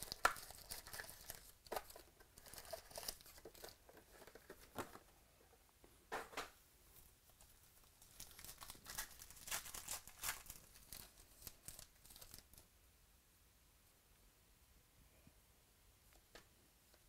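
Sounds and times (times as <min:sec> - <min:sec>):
wrapper tearing and crinkling: 0:00.0 - 0:03.8, 0:07.8 - 0:12.6.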